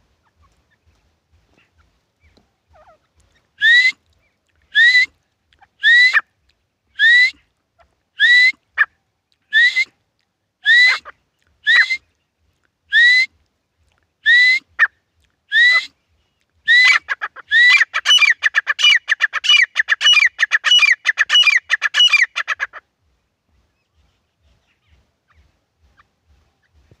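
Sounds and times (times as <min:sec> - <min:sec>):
francolins calling: 0:00.0 - 0:06.2, 0:16.6 - 0:22.9.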